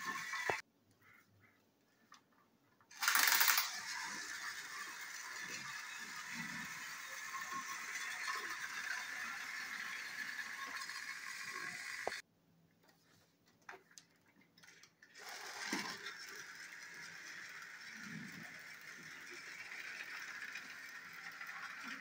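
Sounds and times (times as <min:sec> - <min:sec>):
toy train motors whirring: 0:00.0 - 0:00.6, 0:02.9 - 0:12.2, 0:14.6 - 0:22.0.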